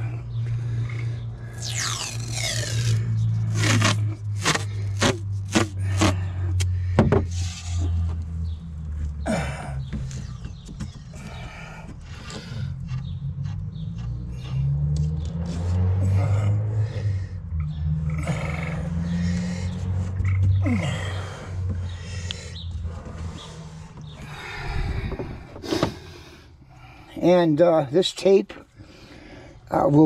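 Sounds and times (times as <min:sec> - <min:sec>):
low hum: 0:00.0 - 0:10.3, 0:11.1 - 0:27.1
masking tape ripping off roll: 0:01.6 - 0:06.2.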